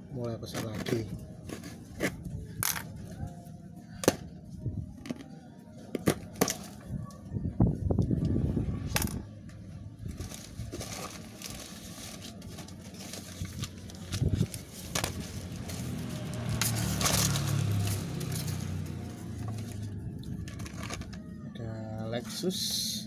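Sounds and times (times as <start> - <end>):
scraping rumble: 7.7 - 21.5
newspaper crinkling rustle: 10.1 - 21.2.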